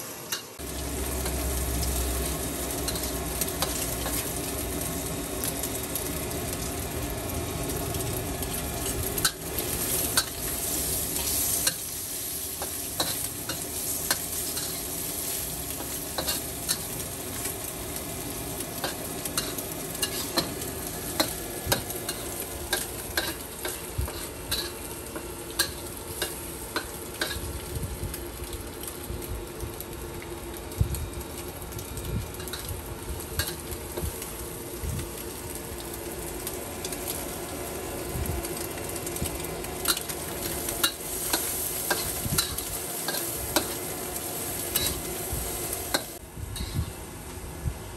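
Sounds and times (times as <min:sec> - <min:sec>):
noodles sizzling in a wok: 0:00.0 - 0:47.9
metal spatula scraping a wok: 0:19.4 - 0:20.6, 0:46.0 - 0:46.8.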